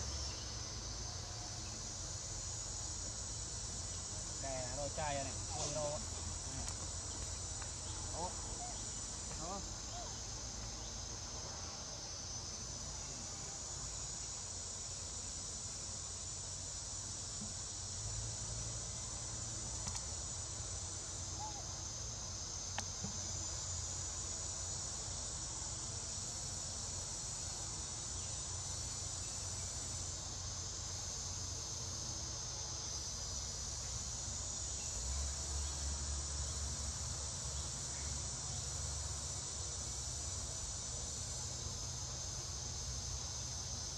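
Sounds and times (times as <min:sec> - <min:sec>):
shrill insect chorus: 0:00.0 - 0:43.9.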